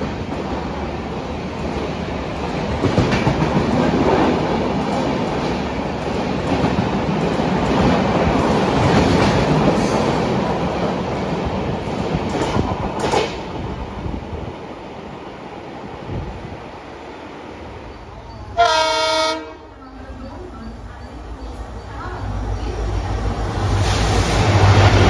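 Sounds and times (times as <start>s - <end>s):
train wheels clattering over rails: 0.0s - 13.8s
sharp train clanks: 1.6s - 13.8s.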